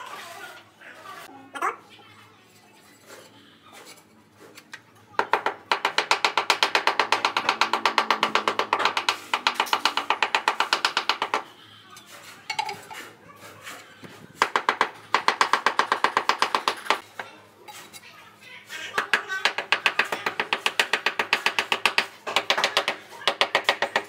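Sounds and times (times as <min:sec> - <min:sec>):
hammer handle tapping floor tiles: 0:05.2 - 0:11.4.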